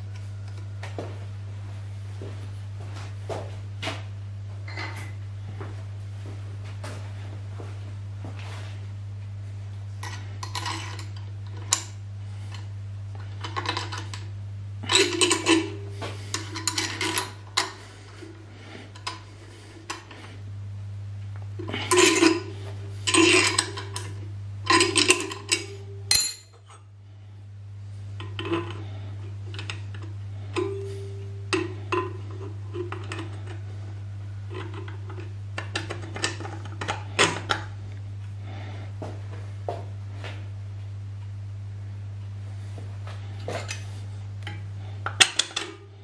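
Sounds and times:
steady low hum: 0.0s - 46.0s
metal parts clinking and scraping: 10.0s - 11.2s, 16.3s - 17.7s.

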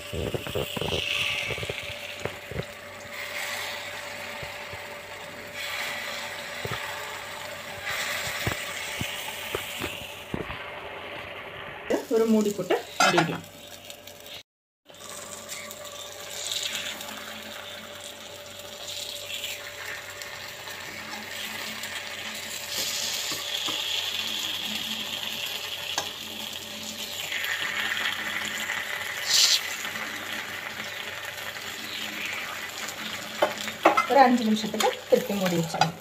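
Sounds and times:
batter sizzling in oil: 0.0s - 36.0s.

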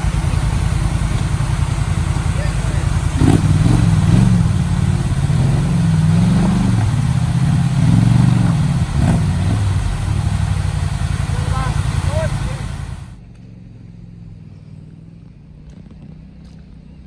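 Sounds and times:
atv engine revving: 0.0s - 13.2s
running water: 0.0s - 13.2s.

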